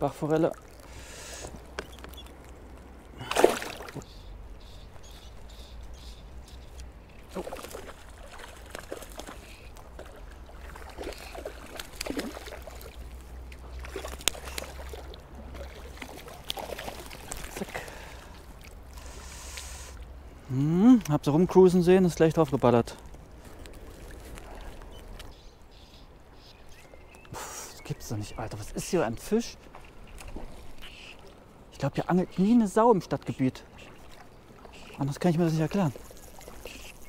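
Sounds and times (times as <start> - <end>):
small water splashes: 0.0 - 20.2, 21.7 - 25.4, 26.6 - 37.0
stream water trickling: 0.0 - 37.0.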